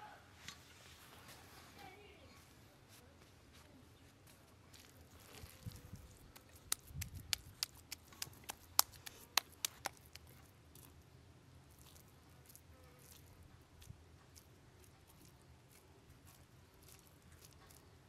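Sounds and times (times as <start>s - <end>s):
soft squishing: 2.9s - 18.0s
hand patting meat mixture: 6.3s - 10.3s.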